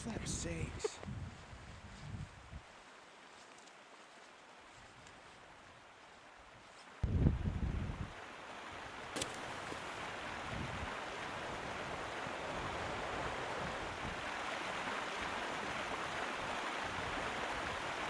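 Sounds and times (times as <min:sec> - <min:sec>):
river water rushing: 0:08.1 - 0:18.0.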